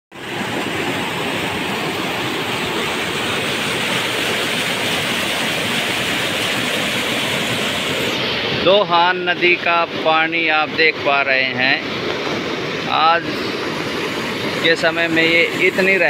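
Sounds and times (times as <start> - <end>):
fast-flowing river water: 0.1 - 16.0.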